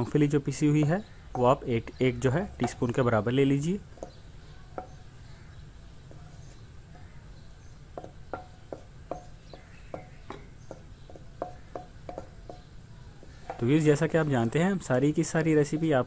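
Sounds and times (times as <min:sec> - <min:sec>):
wooden spatula tapping metal pan: 0:00.7 - 0:01.7, 0:02.6 - 0:03.1, 0:03.8 - 0:05.1, 0:07.8 - 0:16.0.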